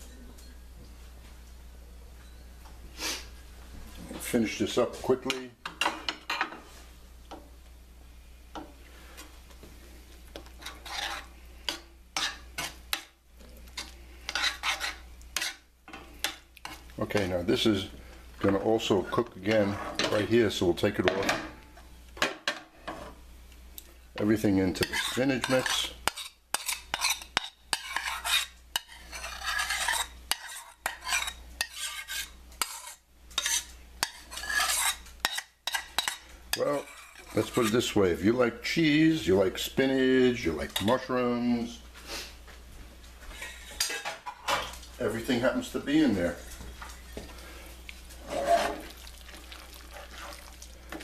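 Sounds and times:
metal spoon scraping skillet: 10.4s - 17.3s, 18.5s - 20.3s, 24.2s - 38.0s, 43.3s - 44.6s, 48.1s - 49.0s, 49.8s - 51.0s.

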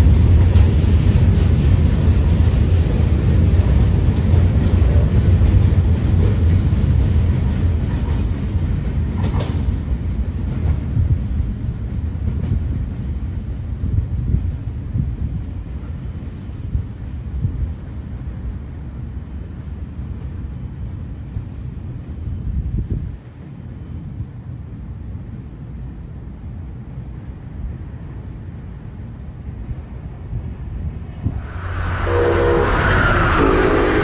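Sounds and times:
train rushing past: 0.0s - 14.8s, 31.1s - 34.0s
wind rumble on microphone: 0.0s - 19.6s, 20.8s - 24.9s, 29.1s - 34.0s.

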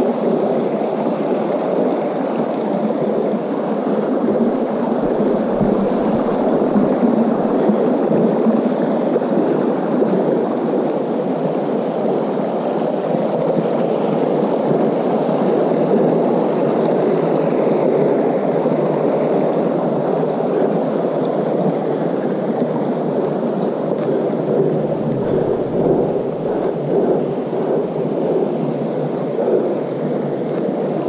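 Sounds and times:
creek rushing: 4.3s - 8.7s, 24.5s - 28.0s.

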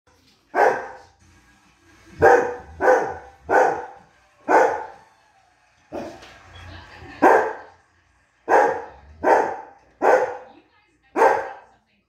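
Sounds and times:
dog barking: 0.5s - 1.1s, 2.2s - 5.0s, 7.2s - 7.8s, 8.5s - 11.7s.

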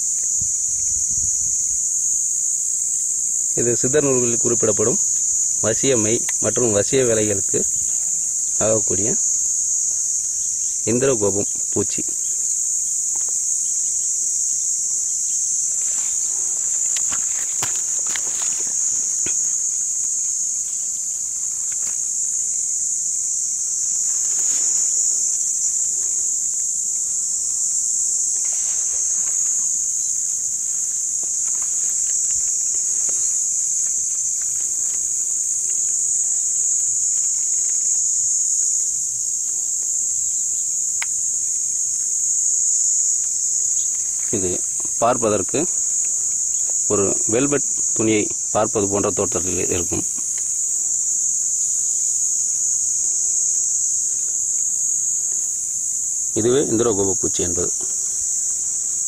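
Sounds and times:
high-pitched insect chorus: 0.0s - 59.0s
rustles and scuffs on ground: 12.4s - 38.0s.

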